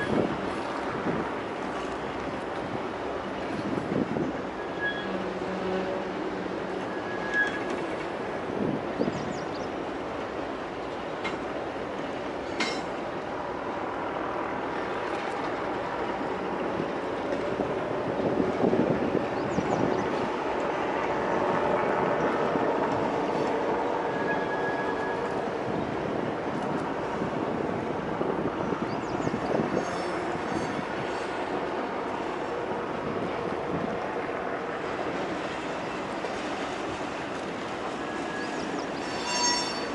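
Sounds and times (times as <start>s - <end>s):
distant freight train rumbling: 0.0s - 39.9s
faint high wheel squeals: 4.5s - 6.1s, 6.7s - 7.9s, 24.0s - 25.4s, 29.1s - 31.4s, 37.9s - 39.9s.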